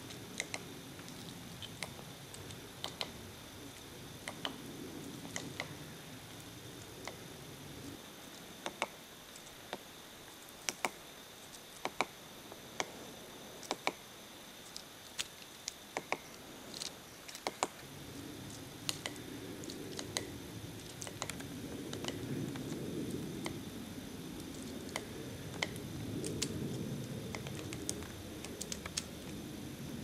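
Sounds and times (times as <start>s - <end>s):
woodpecker tapping on bark: 0.4s - 3.2s, 4.2s - 4.6s, 5.2s - 5.8s, 8.6s - 9.0s, 10.6s - 11.0s, 11.8s - 12.2s, 13.6s - 14.0s, 15.9s - 16.4s, 17.3s - 17.8s, 18.5s - 22.8s, 24.5s - 26.5s, 27.3s - 29.1s
low rumbling noise: 17.8s - 30.0s.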